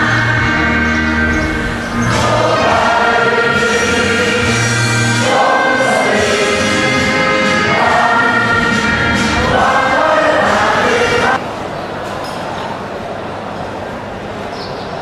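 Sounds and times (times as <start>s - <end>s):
choir singing slow song: 0.0s - 11.4s.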